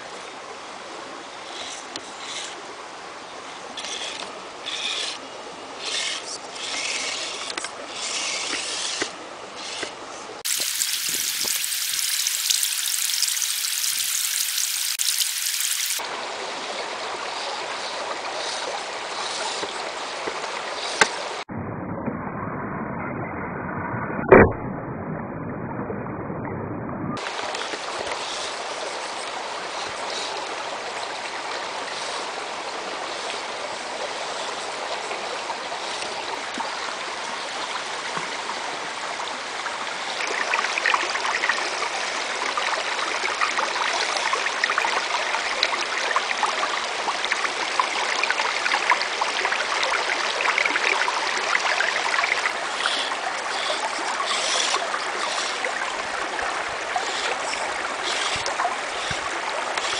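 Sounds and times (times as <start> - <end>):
rocky stream rushing: 27.2 - 59.9.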